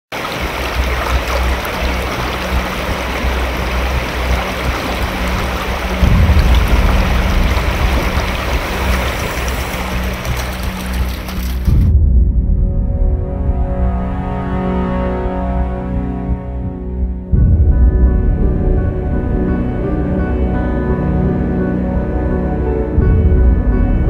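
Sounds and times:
river water rushing past rocks: 0.1 - 11.8
low pulsing background music: 0.2 - 24.0.

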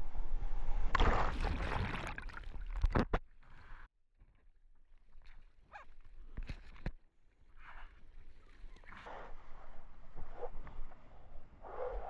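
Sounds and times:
water splashes: 0.9 - 3.9.

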